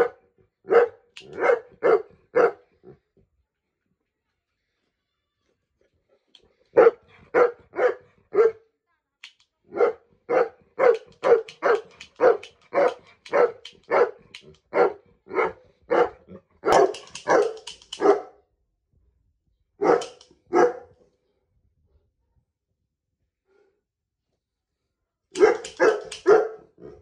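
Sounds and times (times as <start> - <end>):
dog barking: 0.0 - 2.8, 6.7 - 8.7, 9.7 - 18.4, 19.8 - 21.0, 25.4 - 27.0.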